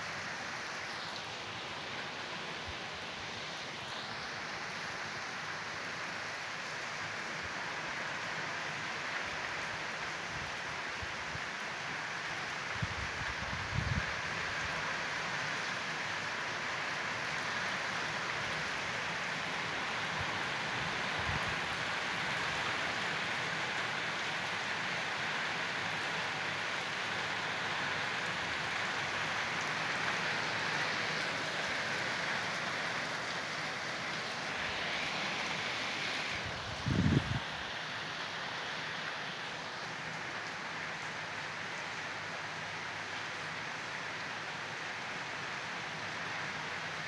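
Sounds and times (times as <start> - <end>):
steady rain: 0.0 - 47.0.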